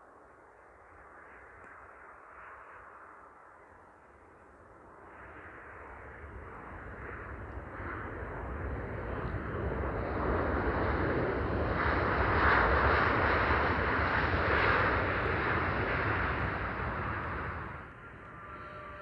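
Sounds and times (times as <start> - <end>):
jet engines roaring: 5.4 - 19.0.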